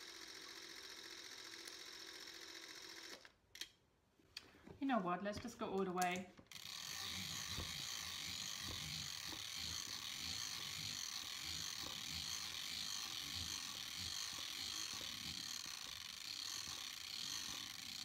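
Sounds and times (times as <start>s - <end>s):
camera crank ratchet clicks: 6.5s - 18.0s.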